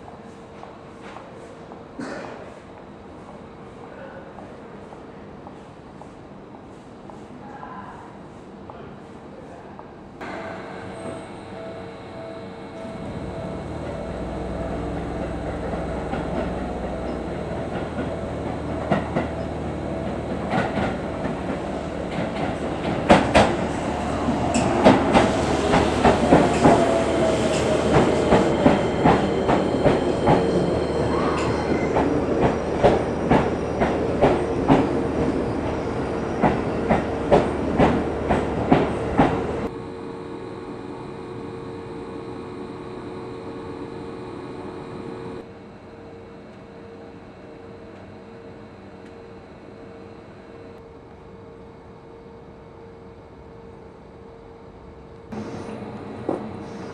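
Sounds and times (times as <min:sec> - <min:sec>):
falling whine of slowing train: 0:09.8 - 0:56.9
train wheels clicking over rail joints: 0:15.6 - 0:30.7.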